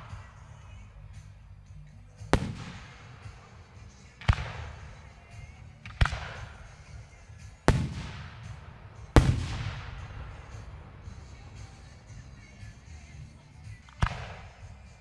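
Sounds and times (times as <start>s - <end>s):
fireworks booming: 2.3s - 3.6s, 7.6s - 11.1s.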